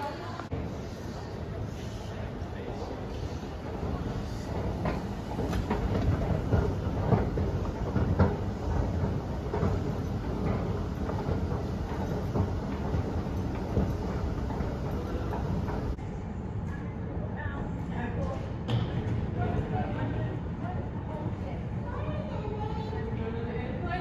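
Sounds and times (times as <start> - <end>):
escalator rumbling: 2.6 - 16.0
escalator steps clacking: 3.6 - 16.0.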